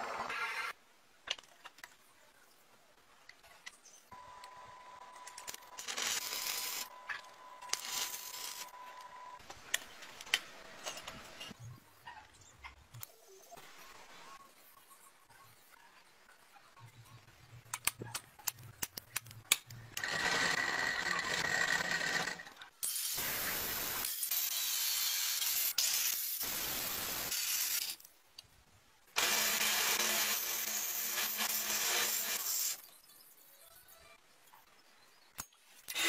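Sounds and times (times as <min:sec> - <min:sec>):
angle grinder cutting steel: 0:05.8 - 0:07.0, 0:29.2 - 0:32.8.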